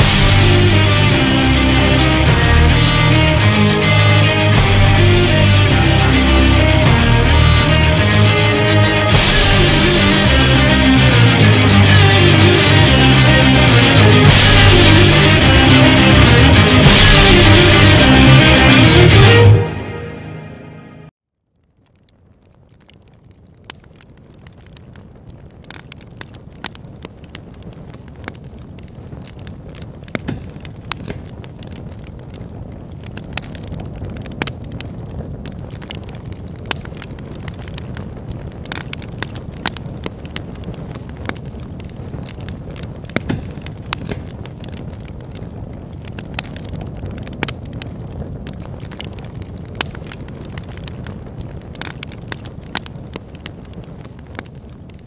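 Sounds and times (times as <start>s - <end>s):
paper burning with crackles: 0.0s - 4.0s, 21.4s - 55.0s.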